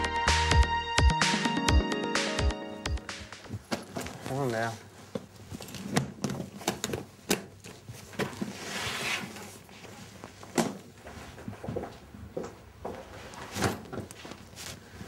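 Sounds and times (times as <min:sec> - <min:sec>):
scraping rustle: 0:08.0 - 0:10.4.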